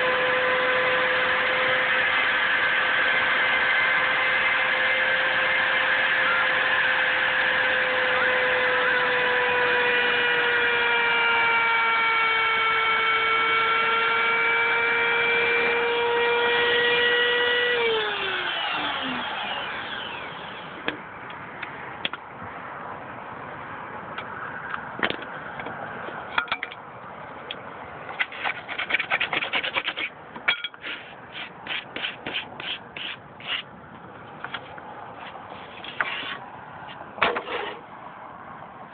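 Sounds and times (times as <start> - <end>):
router motor whining: 0.0 - 20.9.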